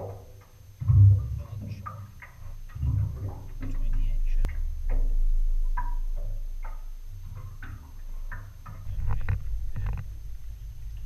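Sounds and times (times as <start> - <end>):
faint clicks and ticks: 0.0 - 11.0
wind rumble on microphone: 2.6 - 11.0.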